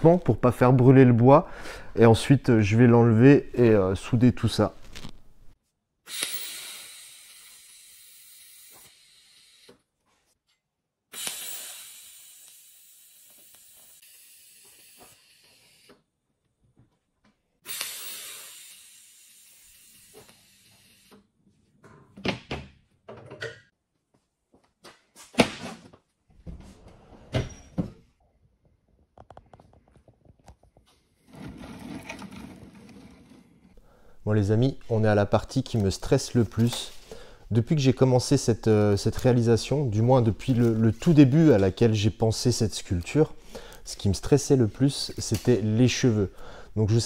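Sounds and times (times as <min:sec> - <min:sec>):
welding arc hissing: 0:11.2 - 0:15.9, 0:17.7 - 0:21.2.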